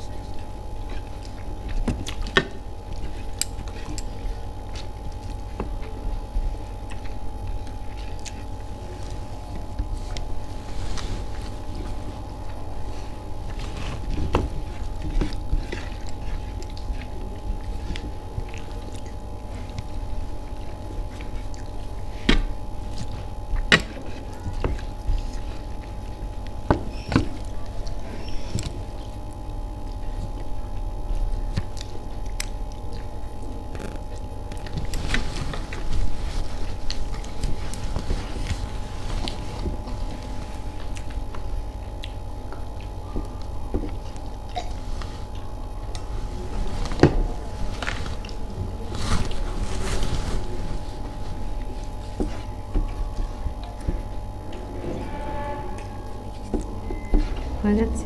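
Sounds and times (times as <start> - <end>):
chewing: 0.0 - 57.9
steady low hum: 0.0 - 58.0
steady tone: 54.1 - 58.0.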